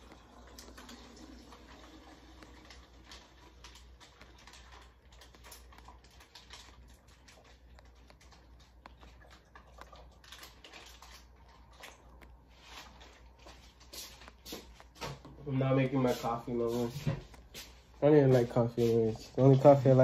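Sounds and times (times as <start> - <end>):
small items clicking and rustling: 0.0 - 15.1
low room hum: 0.0 - 20.0.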